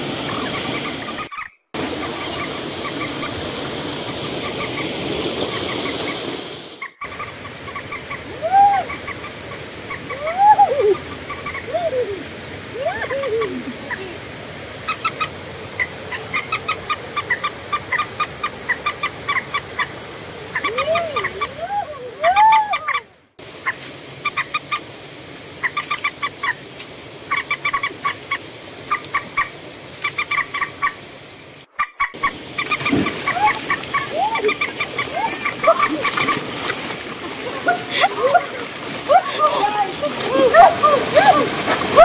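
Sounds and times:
chicken squawks: 31.8 - 36.8.

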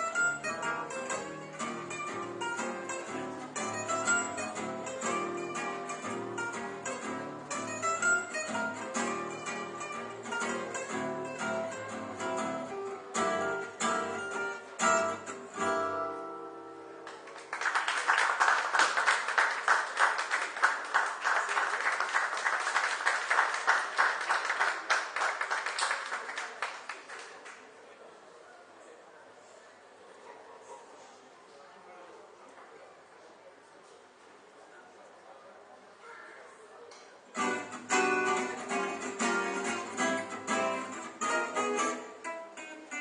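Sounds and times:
jazz on acoustic guitars: 0.0 - 17.3, 37.3 - 43.0
audience applause: 17.0 - 27.8.

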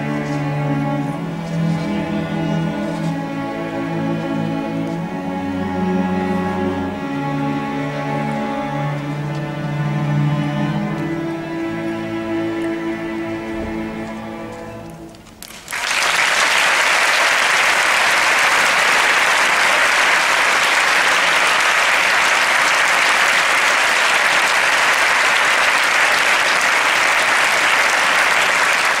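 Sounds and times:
audience applauding: 15.4 - 29.0.

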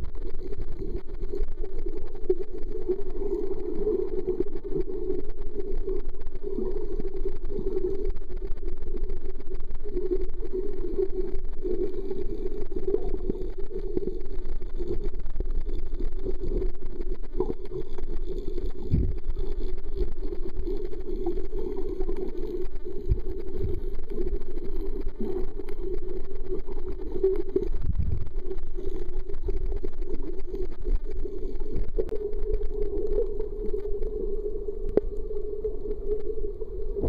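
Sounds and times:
muffled underwater drone: 0.0 - 37.0
dull low thumps: 18.9 - 19.2, 27.8 - 28.3.

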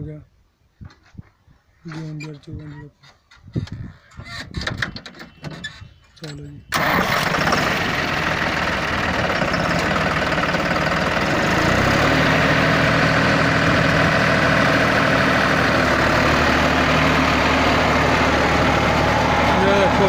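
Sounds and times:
tractor diesel engine running: 6.7 - 20.0.

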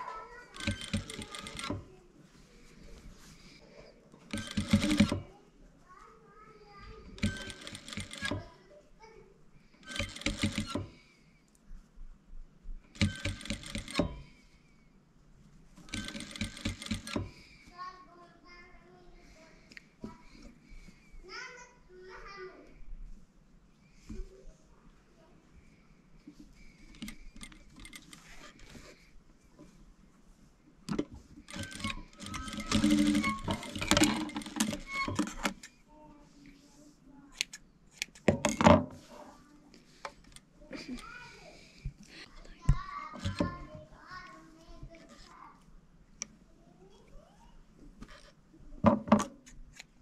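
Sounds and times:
sewing machine stitching: 0.5 - 1.9, 4.3 - 5.3, 7.2 - 8.5, 9.8 - 11.0, 12.9 - 14.3, 15.8 - 17.4, 26.9 - 29.0, 30.9 - 35.7, 43.2 - 43.6.

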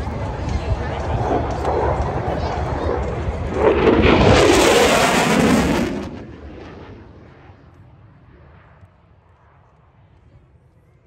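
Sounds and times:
fighter jet passing: 0.2 - 10.0.

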